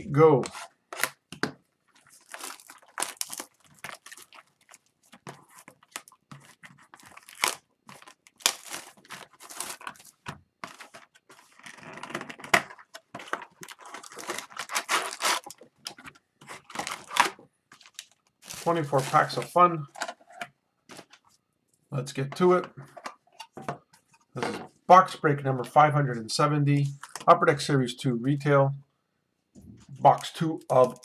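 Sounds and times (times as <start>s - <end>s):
wrapping tearing and crinkling: 1.8s - 19.5s, 30.1s - 31.0s
cardboard scraping: 2.0s - 19.5s.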